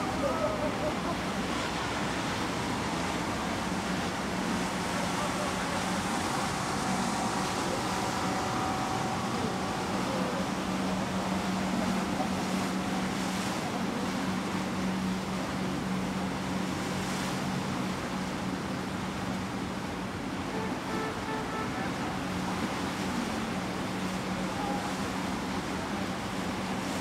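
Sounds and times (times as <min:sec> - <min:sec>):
ship engines humming: 0:00.0 - 0:27.0
even rushing noise: 0:01.8 - 0:13.7.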